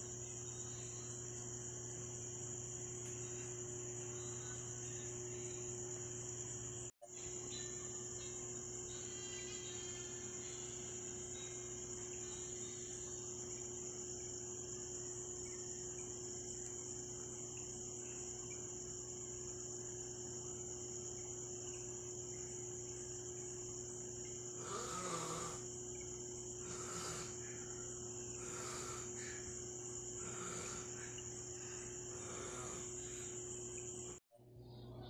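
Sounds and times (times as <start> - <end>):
crickets chirping: 0.0 - 35.0
faint low hum: 0.0 - 35.0.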